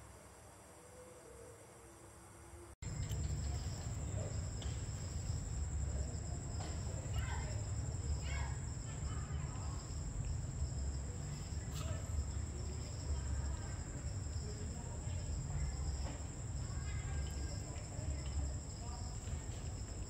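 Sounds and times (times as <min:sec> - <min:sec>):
crickets trilling: 0:00.0 - 0:20.0
faint indistinct voices: 0:00.1 - 0:20.0.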